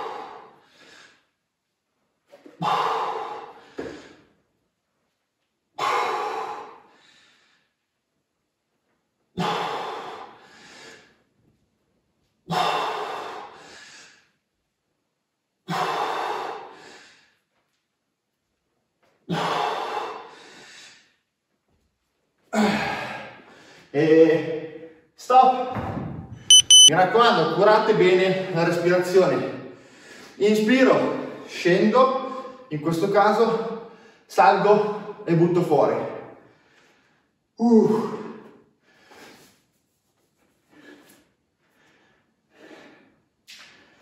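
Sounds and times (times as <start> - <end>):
person breathing heavily: 0.0 - 1.3, 2.6 - 4.3, 9.4 - 11.2, 12.5 - 14.4, 19.3 - 21.2, 40.6 - 44.0.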